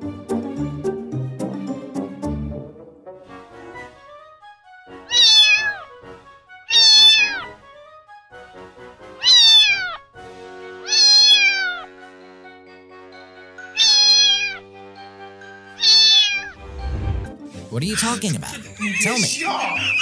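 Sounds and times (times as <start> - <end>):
kitten meowing: 5.1 - 5.9, 6.7 - 7.5, 9.2 - 10.0, 10.8 - 11.9, 13.8 - 14.6, 15.8 - 16.6.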